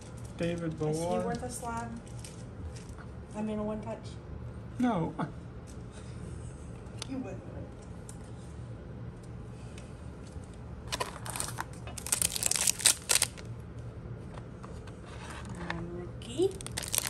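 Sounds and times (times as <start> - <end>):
steady low hum: 0.0 - 17.0
card pack crinkling: 10.9 - 13.5, 16.5 - 17.0.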